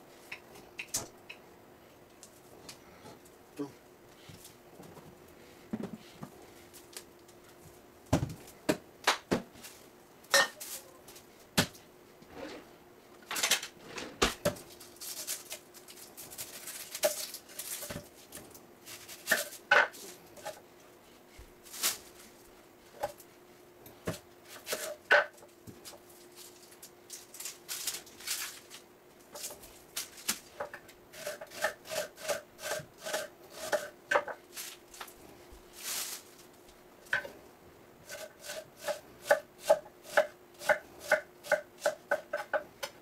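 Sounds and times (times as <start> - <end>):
faint steady hum: 0.0 - 43.0
kitchen utensils clattering: 10.3 - 10.6.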